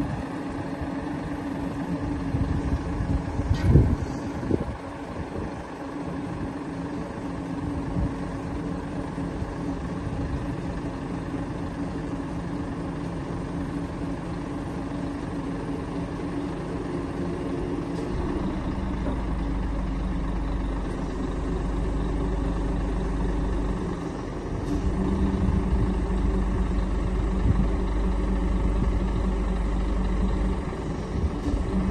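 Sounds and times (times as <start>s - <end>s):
diesel truck engine running: 0.0s - 31.9s
deep low rumble: 17.9s - 31.9s.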